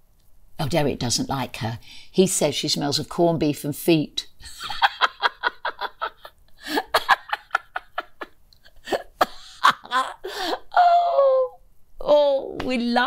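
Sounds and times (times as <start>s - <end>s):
older woman laughing: 4.4s - 11.4s.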